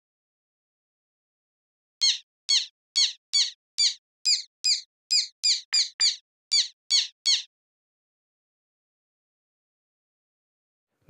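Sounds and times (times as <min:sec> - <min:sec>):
synthesized squeaky bird calls: 0:02.0 - 0:07.5.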